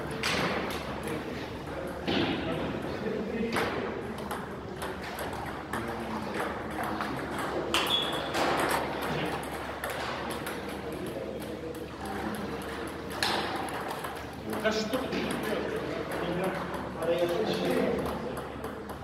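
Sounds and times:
ping pong ball clicking: 12.6 - 19.0.

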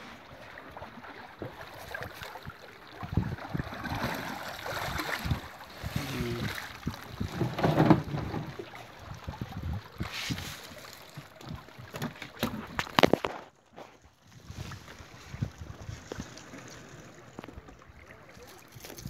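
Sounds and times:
water splashing and sloshing: 0.0 - 19.0
wet net hauled over boat side: 0.0 - 19.0
knocks against wooden hull: 6.9 - 8.6.

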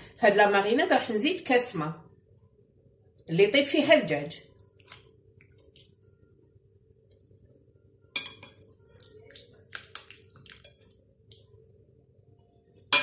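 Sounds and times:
hand squishing wet marinade: 4.2 - 7.7, 8.4 - 12.8
small wet clicks: 4.4 - 6.2, 7.0 - 7.6, 8.6 - 11.7.

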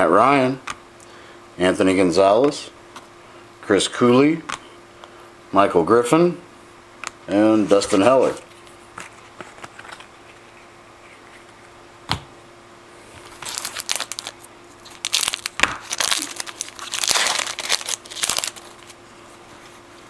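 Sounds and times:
wrapper crinkling: 13.2 - 19.0
card pack wrapper tearing: 13.3 - 19.0.

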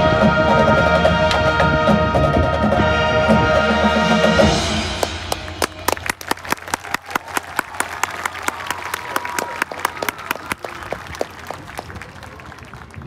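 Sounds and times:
crowd clapping and applauding: 5.0 - 13.0.

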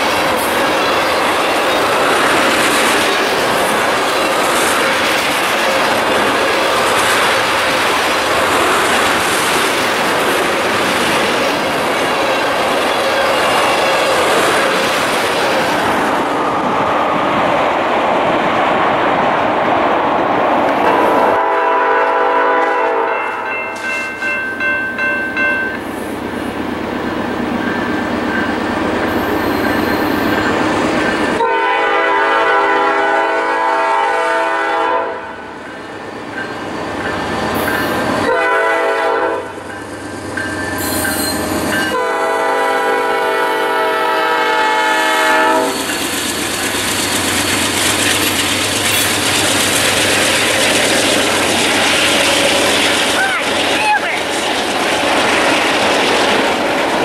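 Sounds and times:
train passing with rolling wheels: 0.0 - 57.0
locomotive air horn: 20.9 - 23.2, 31.4 - 35.4, 38.2 - 39.6, 41.9 - 45.8.

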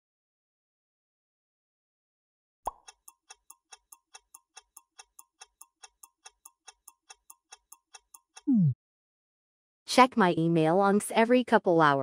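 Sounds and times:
clock ticking: 2.7 - 8.5.

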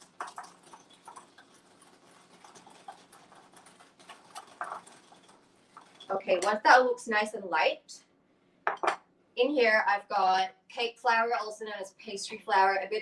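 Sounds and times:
whisk scraping glass bowl: 0.0 - 6.5.

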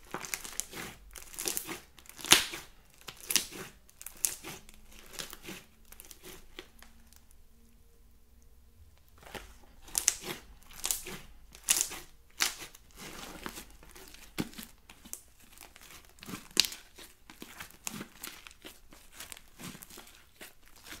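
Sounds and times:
slime squeezed with sticky crackles: 0.0 - 7.3, 9.1 - 21.0.

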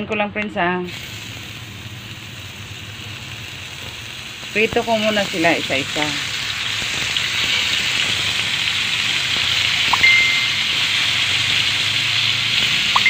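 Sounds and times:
meat sizzling in frying pan: 0.8 - 13.0
brief ping: 9.9 - 10.7.

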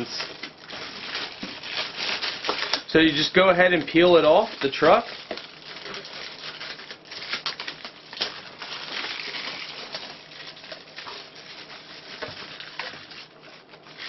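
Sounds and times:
plastic film crinkling: 0.0 - 14.0.

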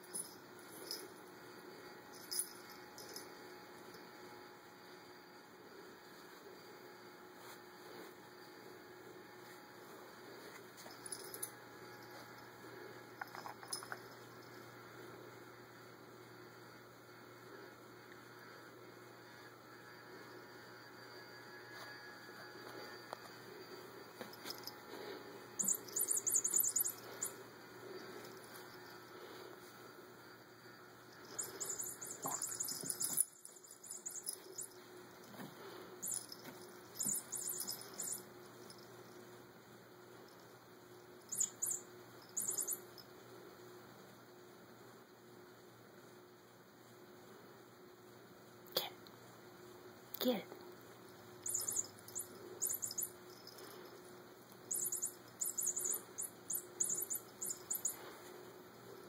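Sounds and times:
small bell jingling: 0.0 - 4.0, 10.8 - 12.5, 13.2 - 14.6, 24.2 - 24.9, 25.6 - 27.4, 31.1 - 39.2, 41.2 - 43.1, 51.4 - 59.0
toy mouse electronic squeaks: 25.6 - 27.4, 31.4 - 34.7, 37.0 - 38.2, 41.3 - 42.9, 51.4 - 53.2, 54.7 - 58.0.

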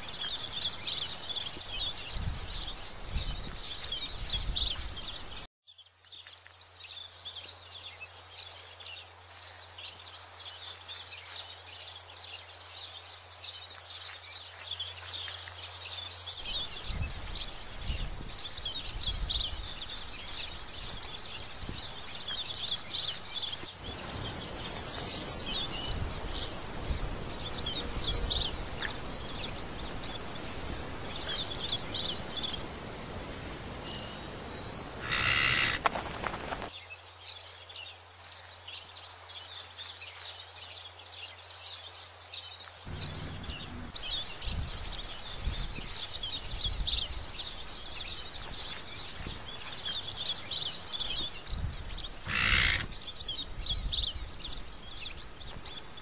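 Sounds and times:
birds chirping: 16.4 - 36.7, 42.9 - 56.0
shrill pulsing bird calls: 23.8 - 36.7, 52.2 - 53.3.

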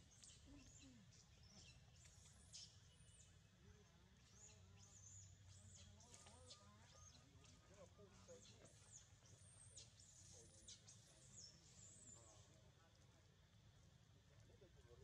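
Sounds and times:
faint bird chirps: 0.0 - 13.2.

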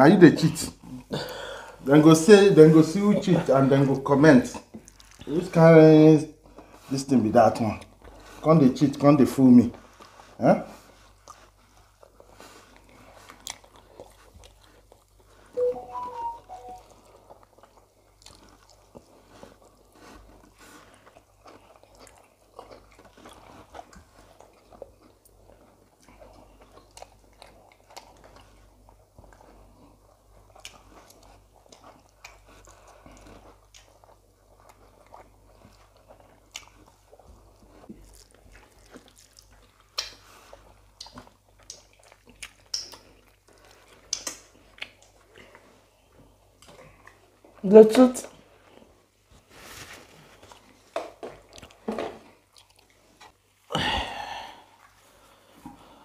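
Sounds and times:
wet mouth smacks: 39.9 - 40.2, 41.0 - 43.0, 44.1 - 45.0.

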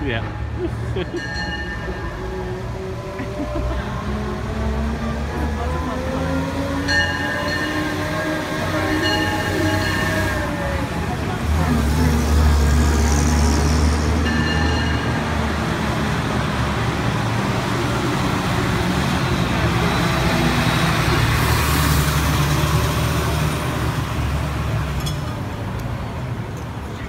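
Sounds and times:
fire engine rumbling past: 0.0 - 27.0
street traffic noise: 0.0 - 27.0.

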